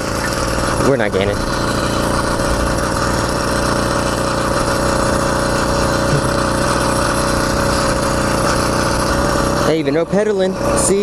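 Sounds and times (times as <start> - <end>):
small bicycle engine running: 0.0 - 11.0.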